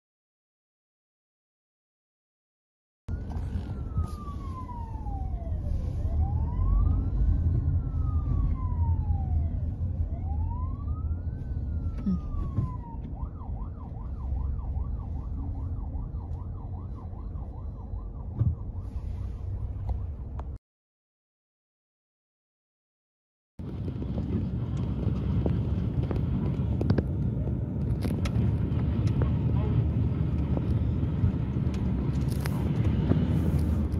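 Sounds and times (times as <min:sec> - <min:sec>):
emergency siren wailing and yelping: 0:03.1 - 0:20.4
road traffic rumble: 0:03.1 - 0:20.6, 0:23.6 - 0:33.9.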